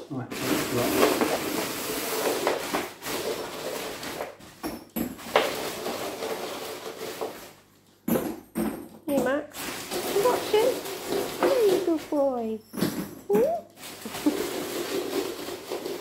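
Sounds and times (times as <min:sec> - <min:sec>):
plastic bag rustling: 0:00.3 - 0:04.6, 0:05.2 - 0:07.8, 0:09.5 - 0:12.6, 0:13.4 - 0:16.0.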